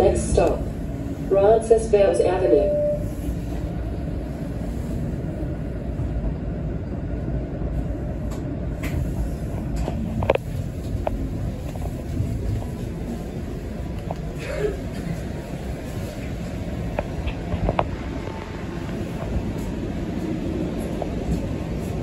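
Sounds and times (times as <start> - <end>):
streetcar rumbling on rails: 0.0 - 22.0.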